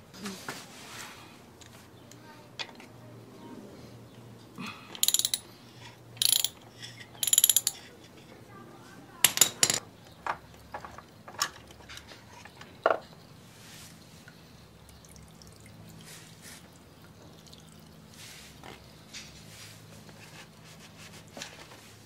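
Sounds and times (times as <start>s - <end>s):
ratchet wrench clicking: 5.0s - 5.5s, 6.2s - 6.6s, 7.2s - 7.8s
tools and parts knocking: 5.0s - 5.5s, 6.2s - 7.9s, 9.2s - 13.1s.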